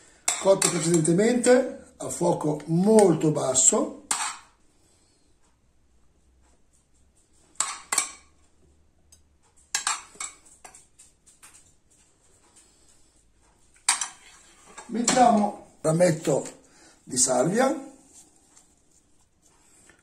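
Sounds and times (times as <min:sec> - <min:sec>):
metal spoon clinking on plate: 0:00.3 - 0:01.1, 0:04.1 - 0:04.5, 0:09.7 - 0:10.9, 0:13.8 - 0:15.6.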